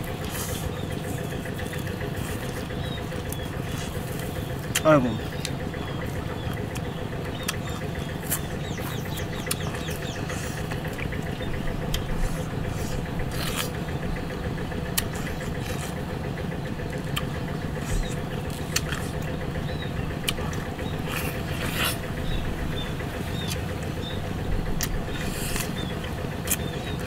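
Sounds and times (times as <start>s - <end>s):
food being torn and chewed: 0.0s - 4.8s, 5.4s - 13.8s, 14.9s - 16.0s, 16.9s - 19.3s, 20.2s - 22.0s
small engine running: 0.0s - 27.0s.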